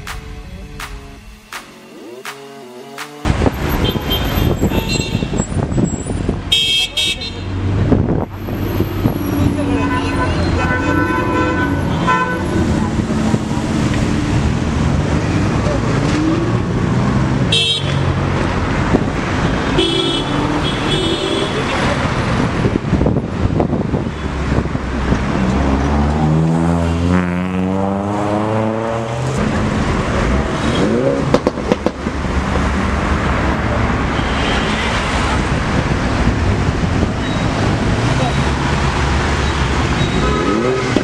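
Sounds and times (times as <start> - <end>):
car horn toots: 3.7 - 5.4, 6.5 - 7.4, 9.7 - 12.6, 17.5 - 18.1, 19.7 - 21.7
car engine revving: 21.7 - 34.0.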